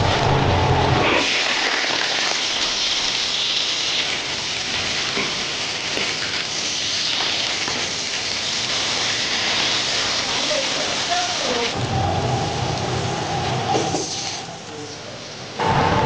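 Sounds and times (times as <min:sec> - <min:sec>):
fish sizzling in hot oil: 0:01.0 - 0:11.8.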